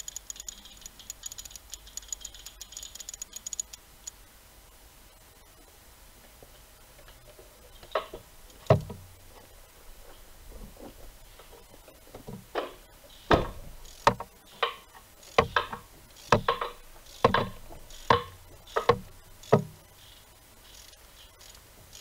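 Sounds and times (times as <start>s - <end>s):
ratchet wrench clicking: 0.0s - 4.2s, 13.8s - 19.7s, 20.6s - 22.0s.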